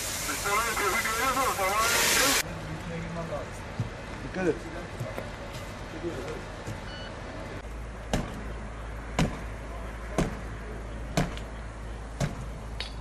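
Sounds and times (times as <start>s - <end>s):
heavy knocks: 9.2s - 9.5s.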